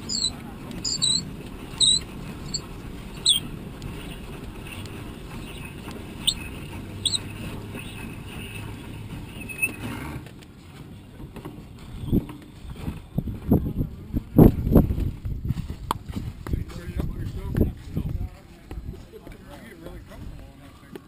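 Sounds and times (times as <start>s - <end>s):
short high chirps: 0.0s - 1.2s, 1.8s - 2.6s, 3.2s - 3.4s, 7.0s - 7.2s
wind buffeting microphone: 12.8s - 19.0s.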